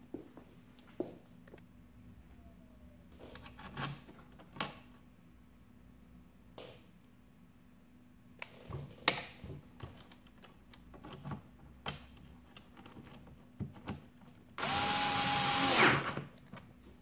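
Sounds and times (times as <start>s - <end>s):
light handling clicks and knocks: 8.4s - 14.4s
electric screwdriver running: 14.6s - 16.2s.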